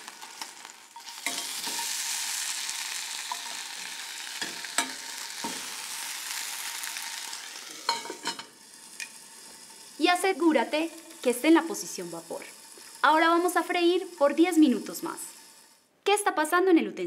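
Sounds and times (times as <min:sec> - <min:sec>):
chicken sizzling in a pan: 0:00.0 - 0:15.8
utensil knocking and scraping a pan: 0:07.8 - 0:09.2.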